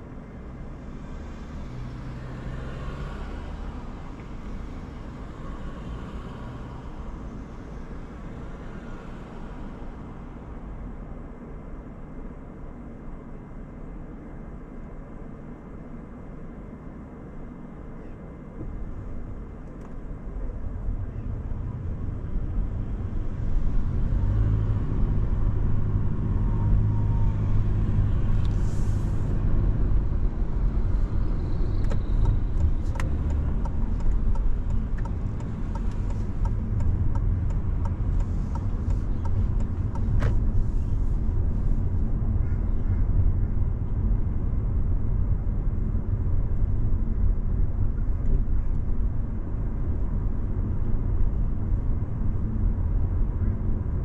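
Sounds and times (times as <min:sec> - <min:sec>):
car engine and tyre rumble: 0:00.0 - 0:54.0.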